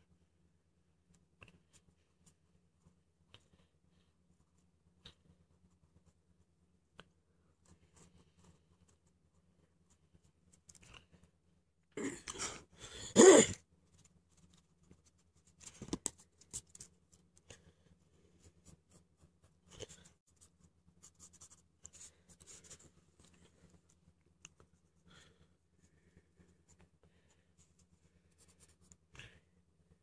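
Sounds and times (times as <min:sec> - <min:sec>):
pencil scratching on paper: 0:13.9 - 0:25.0.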